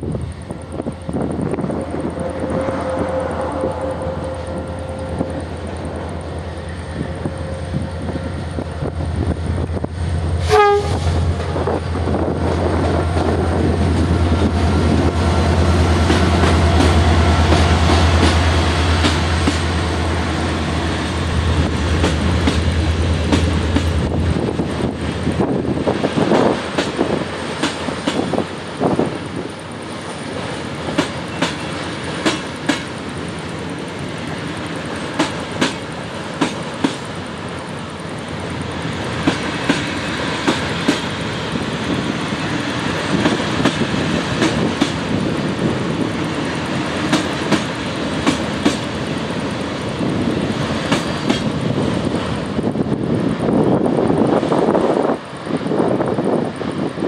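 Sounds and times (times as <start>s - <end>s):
wheels clicking over rail joints: 0.0s - 10.0s, 21.5s - 57.0s
train wheels rumbling on rails: 0.0s - 57.0s.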